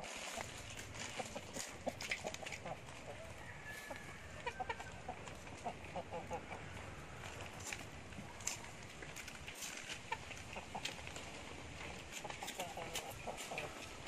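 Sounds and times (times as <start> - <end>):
fowl clucking: 0.0 - 7.0, 10.0 - 11.0, 12.1 - 14.0
straw rustling and crackling: 0.0 - 14.0.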